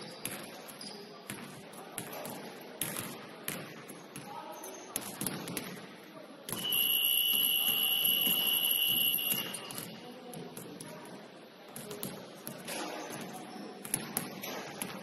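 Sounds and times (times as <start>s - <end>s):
basketballs bouncing on wooden floor: 1.3s - 4.4s
scoreboard buzzer tone: 6.6s - 9.6s.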